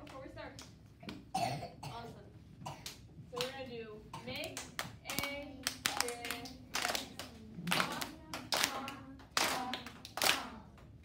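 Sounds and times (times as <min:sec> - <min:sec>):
children clapping in time: 0:04.4 - 0:10.6.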